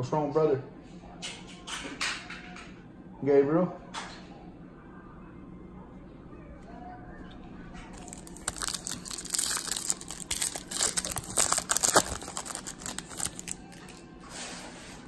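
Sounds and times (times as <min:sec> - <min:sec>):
wrapper tearing and crinkling: 0:08.0 - 0:14.0.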